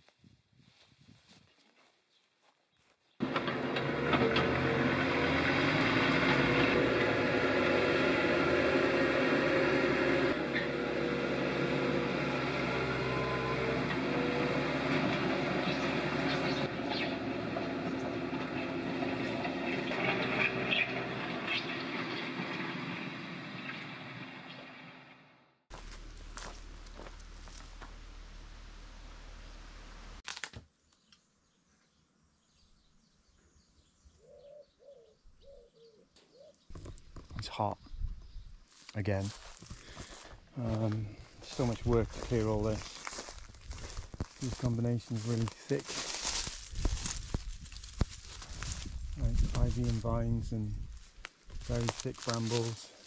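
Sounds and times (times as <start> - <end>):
loader engine running: 3.2 - 30.2, 39.7 - 52.8
small birds chirping: 15.6 - 17.2, 30.8 - 44.7
dove cooing: 34.2 - 36.7.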